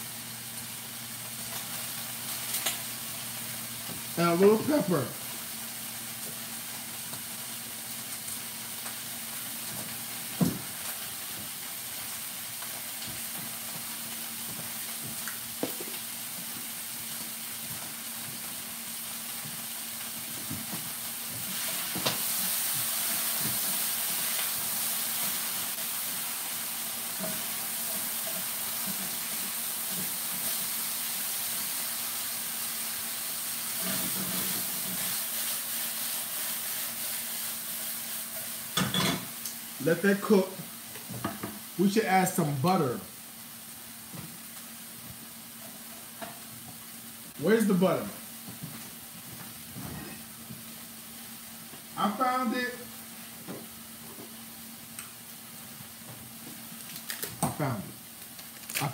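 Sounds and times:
vegetables sizzling in a skillet: 0:00.0 - 0:58.9.

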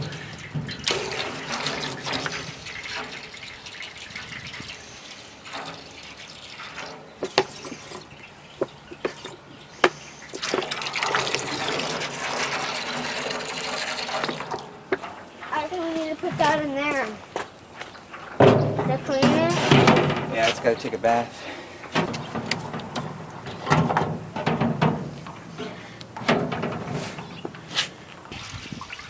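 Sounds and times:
water running and splashing: 0:00.0 - 0:14.9, 0:28.3 - 0:29.0.

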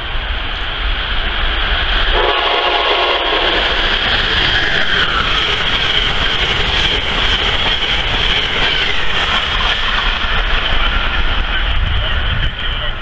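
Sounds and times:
rail clatter: 0:00.0 - 0:13.0
train wheels rushing on rail: 0:00.0 - 0:13.0
locomotive whine falling in pitch: 0:02.1 - 0:11.6.

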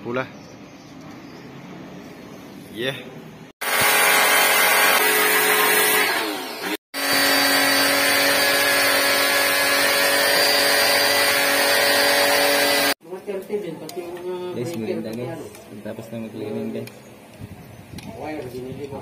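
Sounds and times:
pressure washer motor humming: 0:03.6 - 0:13.0.

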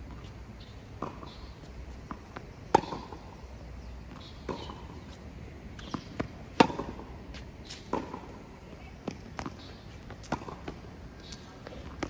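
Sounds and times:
tennis ball bouncing: 0:00.0 - 0:12.0
racket hitting tennis ball: 0:00.9 - 0:03.3, 0:04.2 - 0:05.2, 0:05.8 - 0:12.0.

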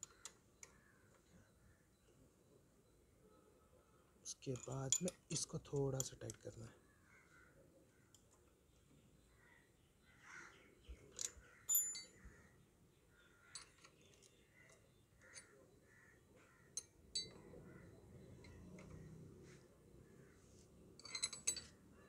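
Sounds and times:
spanner clicking on metal: 0:04.5 - 0:06.5, 0:21.0 - 0:21.8.

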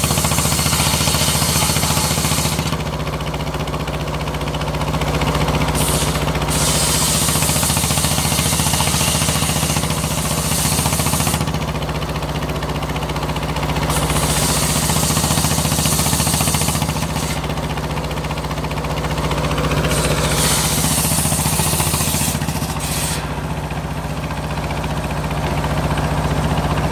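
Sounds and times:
saw blade spinning free: 0:00.0 - 0:02.8, 0:05.7 - 0:11.6, 0:13.9 - 0:17.6, 0:19.7 - 0:23.8
circular saw cutting wood: 0:00.0 - 0:03.1, 0:05.6 - 0:11.8, 0:13.8 - 0:17.7, 0:19.5 - 0:24.1
engine droning: 0:00.0 - 0:26.9.

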